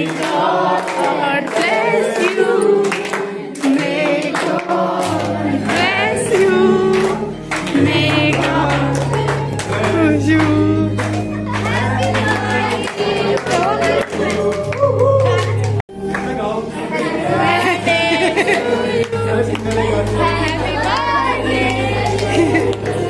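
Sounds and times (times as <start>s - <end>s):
hand-clapping: 0.0s - 16.4s
group singing: 0.0s - 23.0s.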